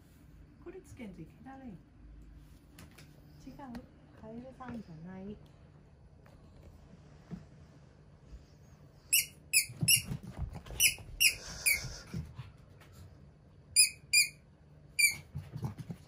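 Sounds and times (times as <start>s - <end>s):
squeaky toy squeaking: 9.1s - 10.1s, 10.8s - 11.8s, 13.8s - 14.4s, 15.0s - 15.2s.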